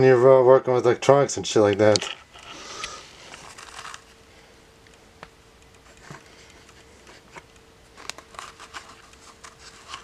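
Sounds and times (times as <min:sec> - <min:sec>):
faint steady hum: 0:00.0 - 0:10.0
light ticks of tools: 0:04.8 - 0:10.0.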